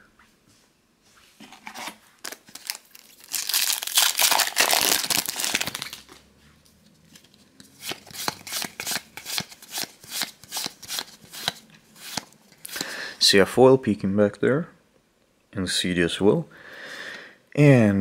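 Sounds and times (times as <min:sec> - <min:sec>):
foil wrapper crinkling: 0:01.6 - 0:06.1
pack tearing ticks: 0:02.2 - 0:06.0.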